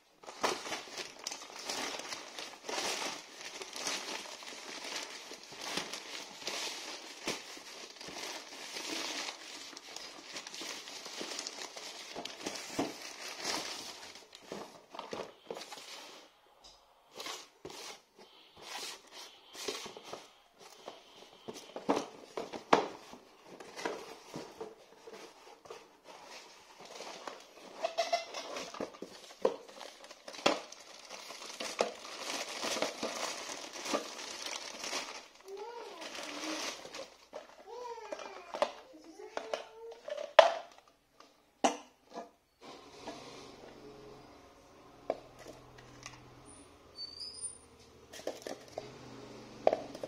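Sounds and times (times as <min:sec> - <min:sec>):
plastic packaging crinkling: 0:00.1 - 0:16.2, 0:18.7 - 0:40.9.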